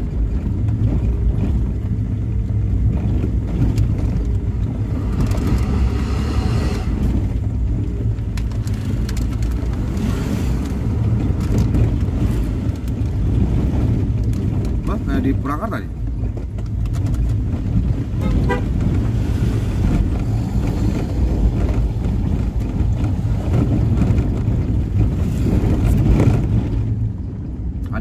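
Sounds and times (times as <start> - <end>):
car engine under load: 0.0 - 28.0
road rumble: 0.0 - 28.0
higher rougher sound: 3.5 - 8.1.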